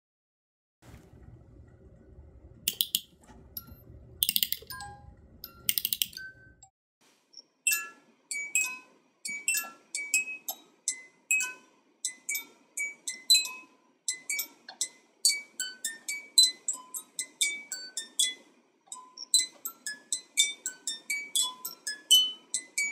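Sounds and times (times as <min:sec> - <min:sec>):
music box ratchet clicking: 0:02.7 - 0:04.8, 0:05.4 - 0:06.3
music box plucking a tune: 0:02.7 - 0:06.6, 0:07.7 - 0:22.9.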